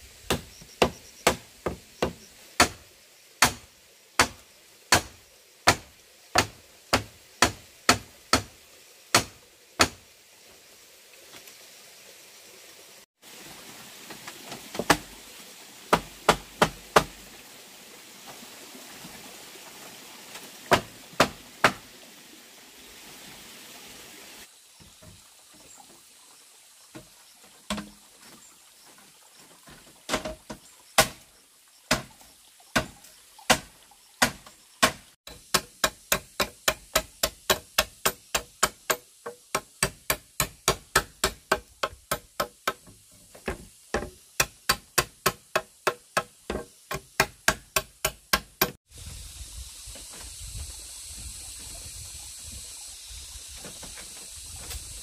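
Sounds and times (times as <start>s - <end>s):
hand tool striking bamboo: 0.3s - 2.8s, 3.4s - 3.6s, 4.2s - 8.5s, 9.1s - 10.0s, 15.9s - 17.2s, 20.7s - 21.8s, 31.0s - 31.2s, 31.9s - 32.1s, 32.8s - 48.8s.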